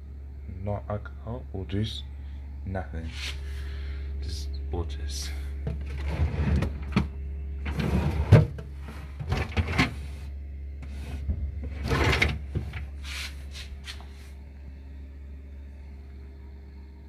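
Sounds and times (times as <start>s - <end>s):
steady low hum: 0.0s - 17.0s
plastic drawers sliding and rattling: 5.8s - 12.9s.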